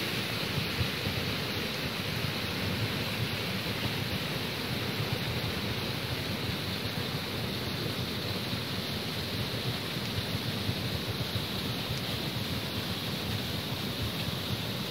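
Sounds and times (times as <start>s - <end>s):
waterfall rushing: 0.0s - 14.9s.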